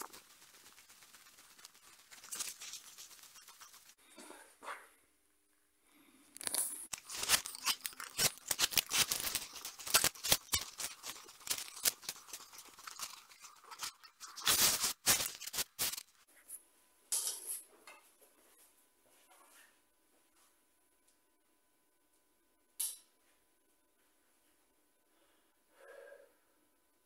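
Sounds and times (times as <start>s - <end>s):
wooden arrows scraping and clicking: 0.0s - 4.0s, 6.4s - 16.2s.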